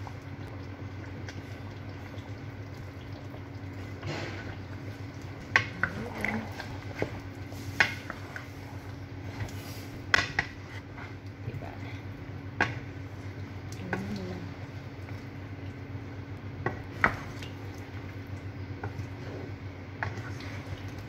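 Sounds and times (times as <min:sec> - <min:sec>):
steady low hum: 0:00.0 - 0:21.0
wooden spatula stirring curry: 0:03.8 - 0:12.0, 0:16.6 - 0:18.1, 0:18.8 - 0:21.0.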